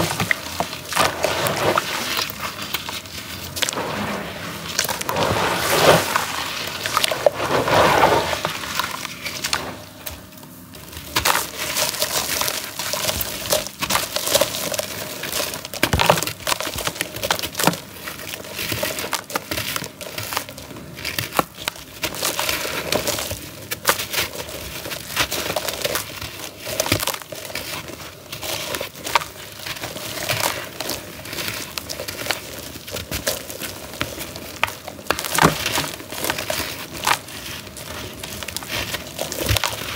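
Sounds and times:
charcoal crumbling and crackling: 0.0 - 39.9
water swishing: 3.7 - 8.9.

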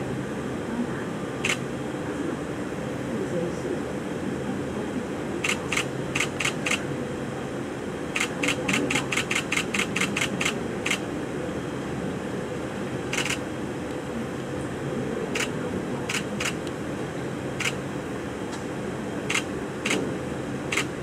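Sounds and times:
camera shutters clicking: 5.5 - 6.8, 8.2 - 11.0, 13.2 - 13.4, 19.3 - 20.0, 20.7 - 20.9.

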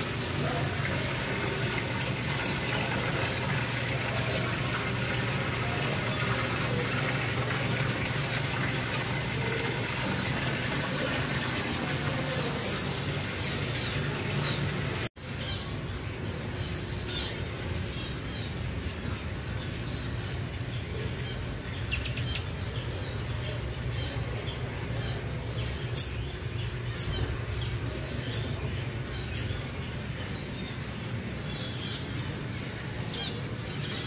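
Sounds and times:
waterfall splashing: 0.0 - 15.1
small birds chirping: 0.0 - 34.0.

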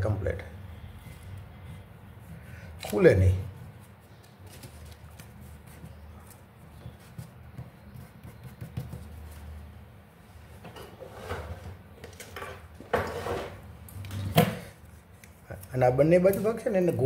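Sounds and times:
paper rustling and clicks: 2.8 - 3.3, 4.1 - 6.4.

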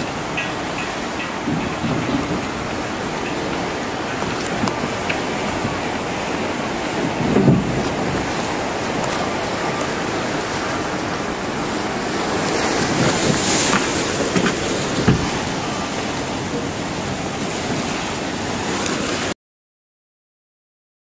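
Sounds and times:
floodwater rushing: 0.0 - 19.4.

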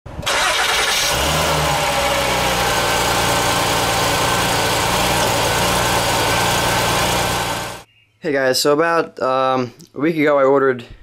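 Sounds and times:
car engine starting and idling: 0.2 - 7.9.

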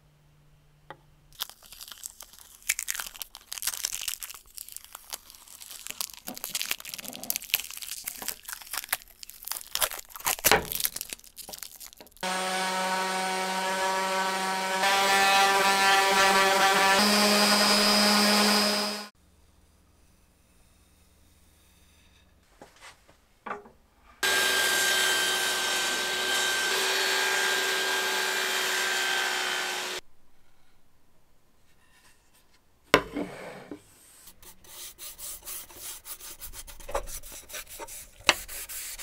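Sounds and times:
power tool motor running: 12.2 - 19.1, 24.2 - 30.0.

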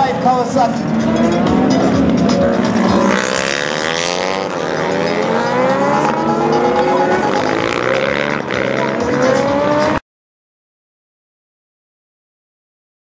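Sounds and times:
racing motorcycle engines revving: 0.0 - 10.0.

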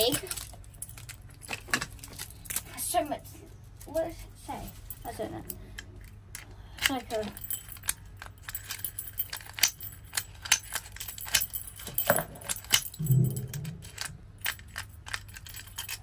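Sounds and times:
metal lock and key clinking: 4.7 - 16.0.

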